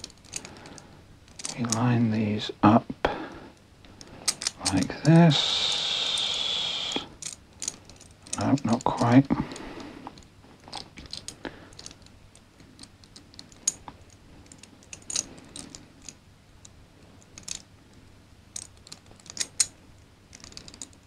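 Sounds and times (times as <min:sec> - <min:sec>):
metal puzzle pieces clicking: 0:00.0 - 0:01.8, 0:04.2 - 0:05.2, 0:07.2 - 0:08.9, 0:10.2 - 0:17.7, 0:18.6 - 0:19.7, 0:20.3 - 0:21.0.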